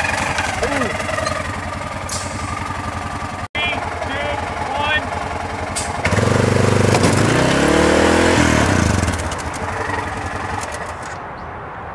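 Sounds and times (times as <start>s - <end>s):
engine revving hard: 0.0s - 1.4s, 5.7s - 10.9s.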